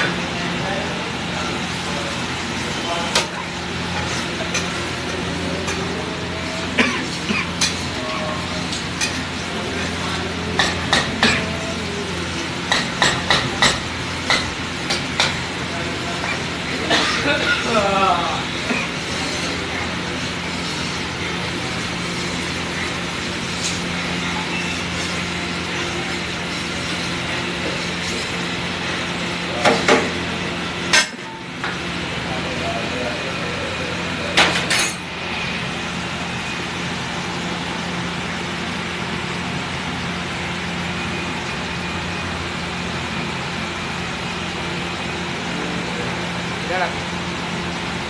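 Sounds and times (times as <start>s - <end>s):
low background hum: 0.0s - 41.8s.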